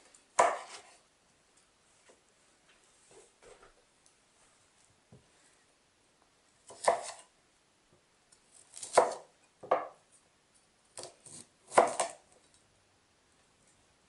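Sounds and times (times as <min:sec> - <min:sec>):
knife cutting broccoli on wooden board: 0:00.4 - 0:01.0, 0:06.7 - 0:07.3, 0:08.5 - 0:10.0, 0:10.9 - 0:12.4.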